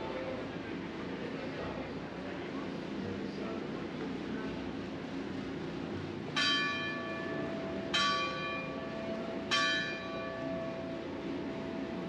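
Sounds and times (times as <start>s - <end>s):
street noise: 0.0s - 12.0s
church bell ringing: 6.4s - 11.1s.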